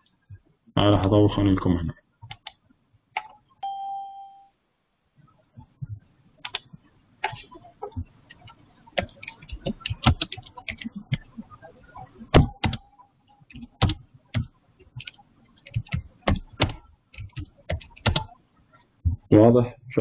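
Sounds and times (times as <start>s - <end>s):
keyboard typing: 2.3s - 2.6s, 6.4s - 11.4s, 12.3s - 18.4s
short electronic beep: 3.6s - 4.6s.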